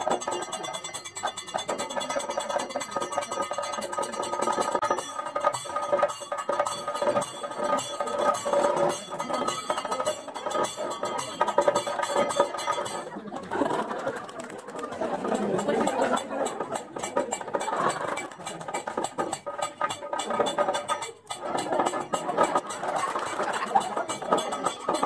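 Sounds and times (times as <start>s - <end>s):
hand cymbals clinking: 0.0s - 13.2s
steady ringing tone: 0.1s - 13.3s.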